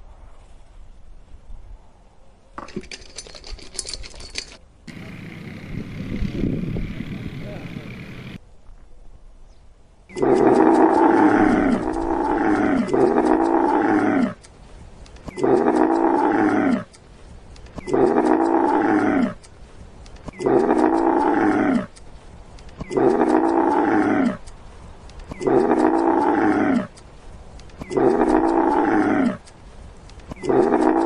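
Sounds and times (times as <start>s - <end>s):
camel calls: 10.1s - 14.5s, 15.2s - 17.0s, 17.8s - 19.5s, 20.2s - 22.0s, 22.8s - 24.5s, 25.2s - 27.0s, 27.8s - 29.5s, 30.3s - 31.0s.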